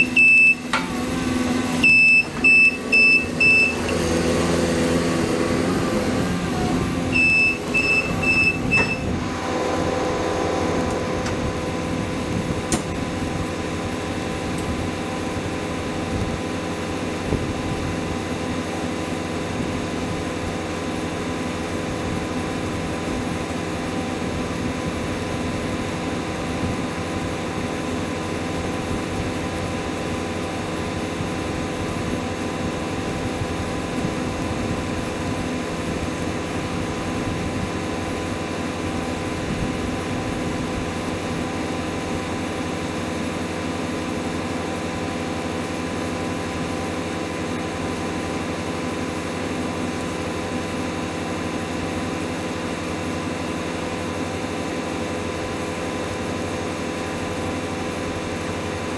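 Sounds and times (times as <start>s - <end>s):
reverse alarm beeps: 0.0s - 0.8s, 1.8s - 4.0s, 7.1s - 9.2s
diesel machinery droning: 0.0s - 58.9s.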